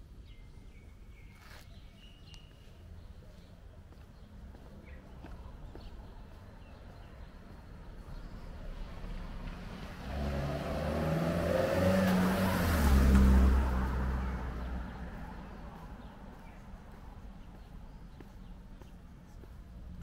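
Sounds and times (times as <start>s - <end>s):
car driving past: 8.6s - 16.4s.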